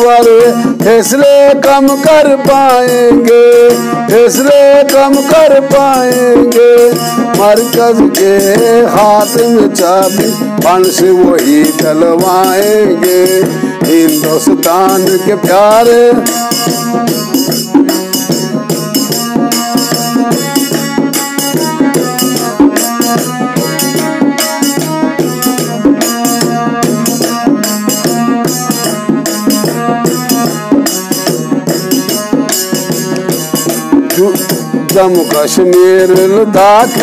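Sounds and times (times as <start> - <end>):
instrumental melody: 0.0 - 37.0
steady percussion beat: 0.0 - 37.0.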